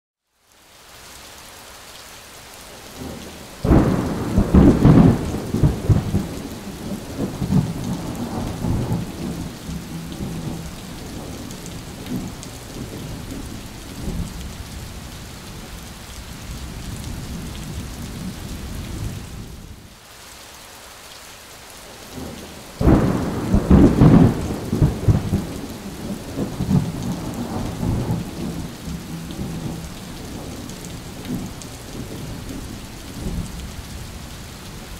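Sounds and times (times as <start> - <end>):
heavy rain: 0.2 - 34.9
thunder claps rumbling: 3.0 - 14.4, 22.1 - 33.6.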